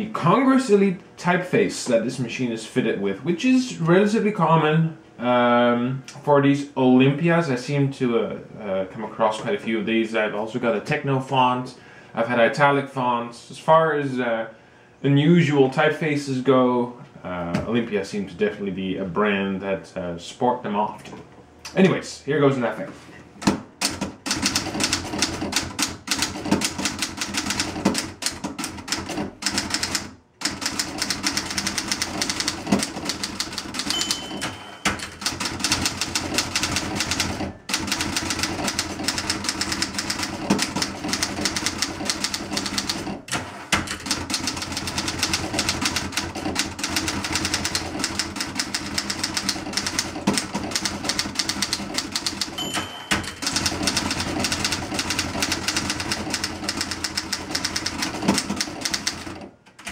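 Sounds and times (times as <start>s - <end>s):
manual typewriter typing: 23.8s - 59.9s
typewriter margin bell: 33.8s - 35.8s, 51.6s - 54.6s.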